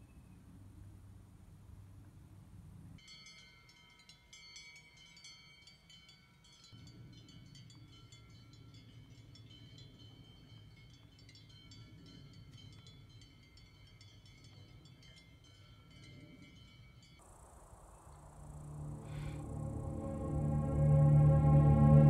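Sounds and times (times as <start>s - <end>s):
small metal bells tinkling: 3.0s - 17.2s
low rumble: 18.1s - 22.0s.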